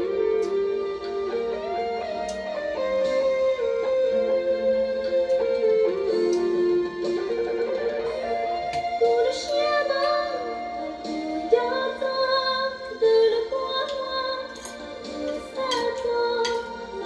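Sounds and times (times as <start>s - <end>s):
woman singing with instruments: 9.0s - 17.0s.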